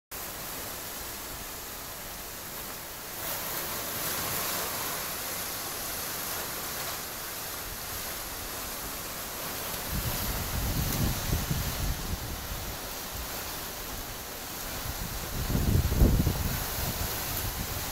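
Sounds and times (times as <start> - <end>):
wind through palm fronds: 0.1 - 17.9
wind buffeting microphone: 7.6 - 17.9.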